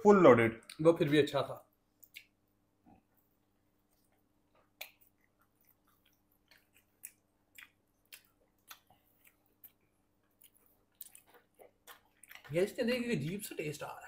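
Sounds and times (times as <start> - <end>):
person chewing food: 1.9 - 2.4, 3.0 - 12.6.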